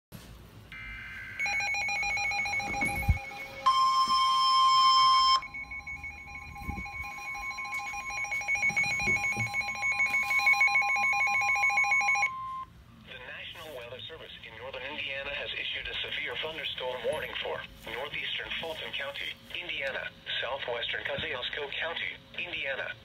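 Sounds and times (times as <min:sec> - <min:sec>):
steady alert tone: 0:00.8 - 0:12.6
pulsing electronic alarm beep: 0:00.8 - 0:12.7.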